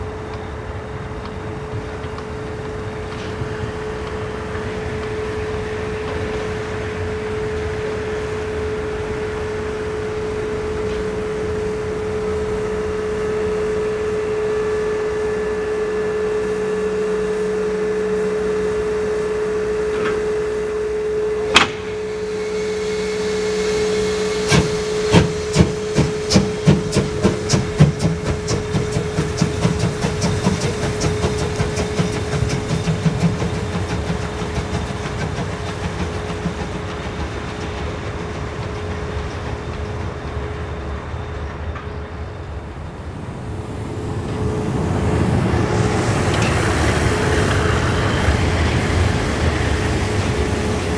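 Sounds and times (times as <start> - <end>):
steam locomotive exhaust chuffs: 0.0 - 50.9
steam locomotive hiss: 0.0 - 50.9
sharp knock: 21.5 - 22.0.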